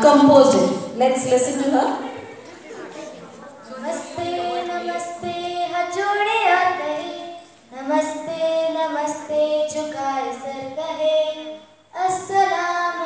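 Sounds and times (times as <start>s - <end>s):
girl singing: 3.6s - 13.0s.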